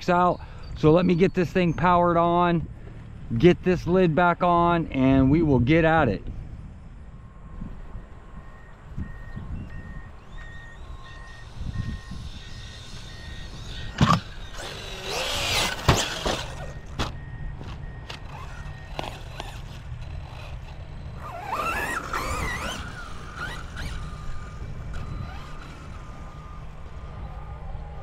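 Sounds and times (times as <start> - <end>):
wind rumble on microphone: 1.6 - 15.6
electric motor whining: 9.3 - 17.0, 18.0 - 28.0.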